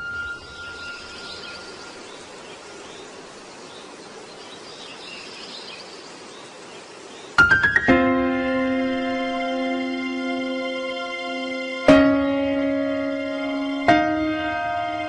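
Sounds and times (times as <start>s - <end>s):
faint high chirps: 0.0s - 3.2s
outdoor ambient hiss: 0.0s - 15.0s
music: 7.4s - 15.0s.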